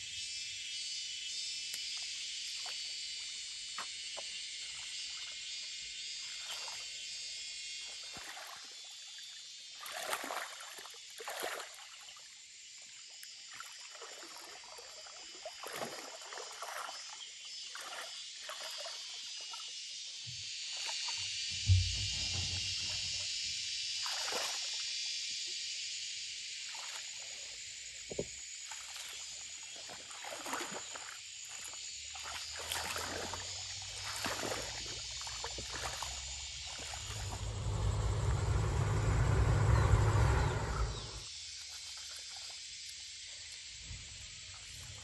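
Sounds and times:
muddy water splashing: 8.0 - 8.8, 9.7 - 12.1, 13.5 - 19.6, 20.8 - 23.4, 24.0 - 24.8, 28.6 - 42.6
low rumble: 21.5 - 23.3, 37.1 - 41.2.

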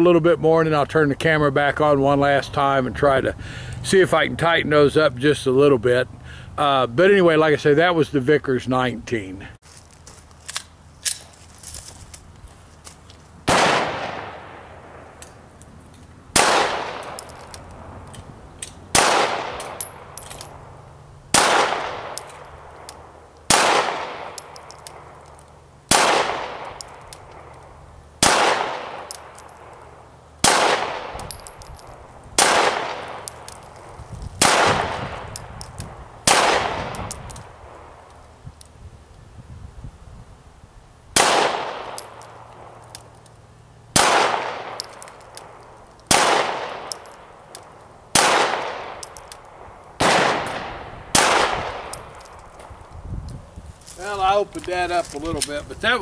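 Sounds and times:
pistol shots with echo: 13.5 - 15.2, 16.4 - 17.4, 18.9 - 20.3, 21.3 - 22.8, 23.5 - 25.2, 25.9 - 27.5, 28.2 - 29.8, 30.4 - 31.6, 32.4 - 33.6, 34.4 - 35.5, 36.2 - 37.9, 41.2 - 42.8, 44.0 - 47.4, 48.1 - 52.4.

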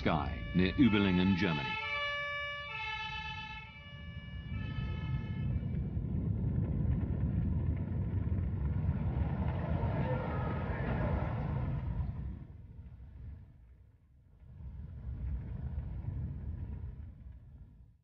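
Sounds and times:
two-tone siren: 0.0 - 6.0
loud low rumble: 3.7 - 17.9.

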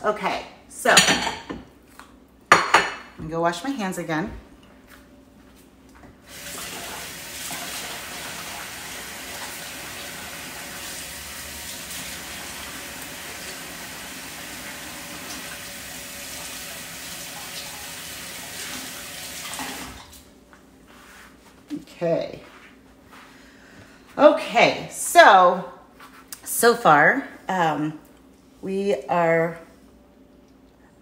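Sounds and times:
water tap running: 6.3 - 20.2.

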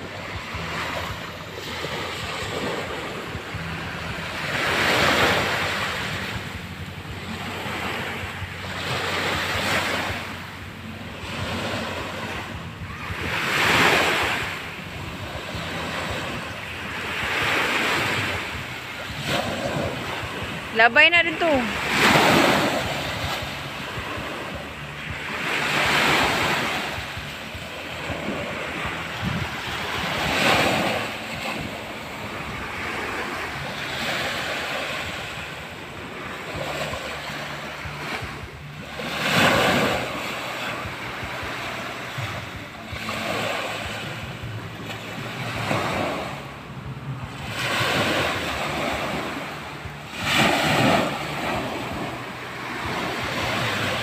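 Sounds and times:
waves washing up shore: 0.0 - 54.0.

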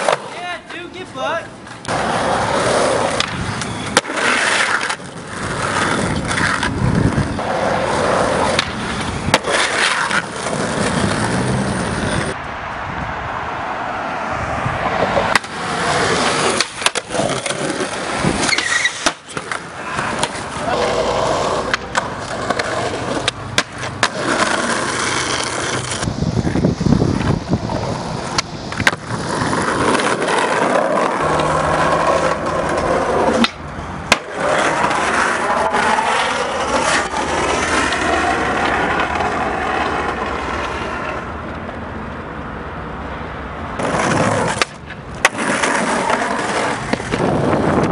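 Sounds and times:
skateboard wheels rolling on concrete: 0.0 - 47.9
skateboard clacks and knocks: 8.4 - 12.4, 28.3 - 41.2, 43.8 - 47.9.

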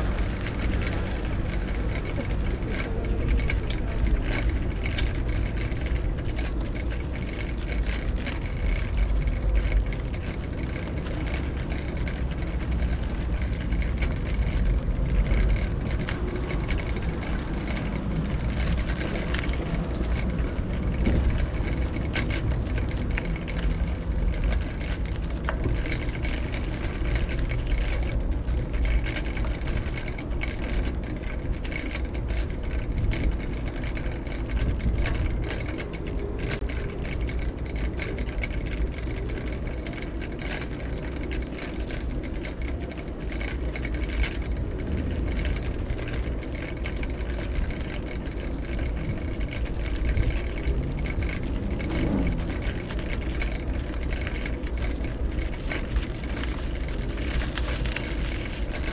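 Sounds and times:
bicycle riding rumble: 0.0 - 58.9
passing traffic: 0.0 - 58.9.

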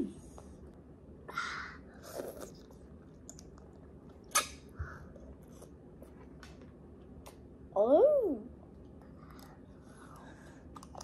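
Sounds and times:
child chewing and crunching food: 1.9 - 7.5, 8.7 - 11.0.

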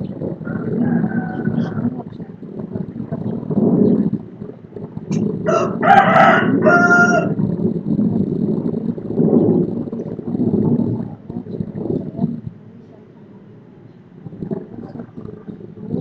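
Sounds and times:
low background rumble: 0.0 - 16.0
rooster crowing: 0.4 - 1.9, 5.4 - 7.4.

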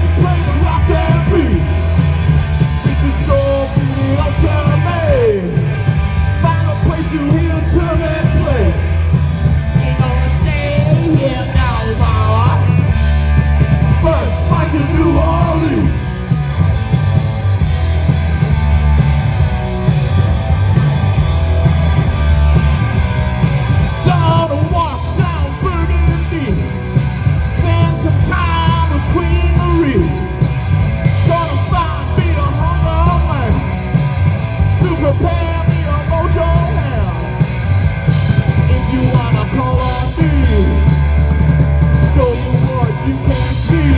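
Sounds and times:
person singing and yelling: 0.0 - 2.0, 2.8 - 5.8, 6.4 - 9.0, 9.7 - 13.0, 13.9 - 16.2, 23.9 - 26.9, 27.5 - 30.4, 31.1 - 33.9, 34.7 - 37.4, 38.5 - 41.0, 41.9 - 43.9
bass guitar: 0.0 - 43.9
distorted electric guitar: 0.0 - 43.9
drums pounding: 0.0 - 43.9.

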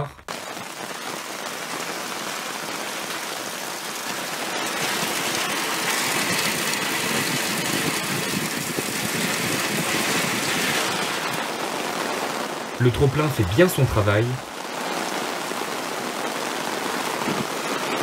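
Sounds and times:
heavy rain: 0.0 - 18.0
water gushing from downspout: 2.8 - 11.8.

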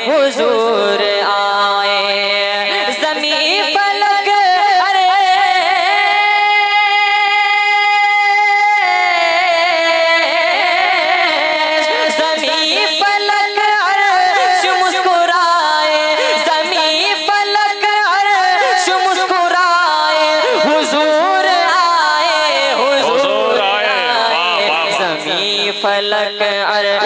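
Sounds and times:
boy singing over a pa system: 0.0 - 27.0.

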